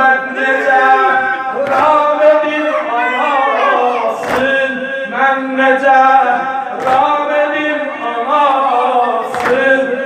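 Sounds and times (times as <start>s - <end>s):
men chanting in unison: 0.0s - 10.0s.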